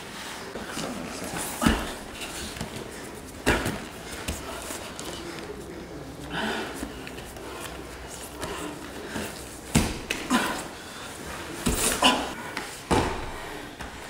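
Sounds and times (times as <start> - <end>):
bodies shifting on mats: 0.5 - 5.6, 6.5 - 14.0
breathing and grunts: 6.1 - 9.6.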